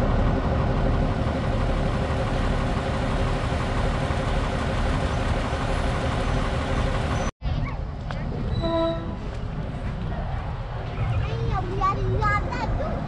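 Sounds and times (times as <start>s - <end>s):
diesel locomotive engine idling: 0.0s - 7.3s.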